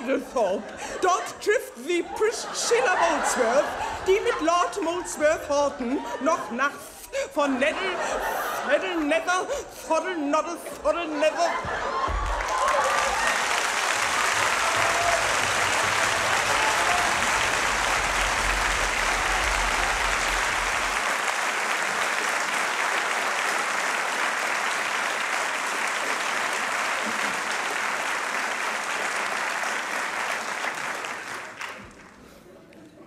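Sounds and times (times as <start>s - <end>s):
audience applauding: 11.6s - 32.7s.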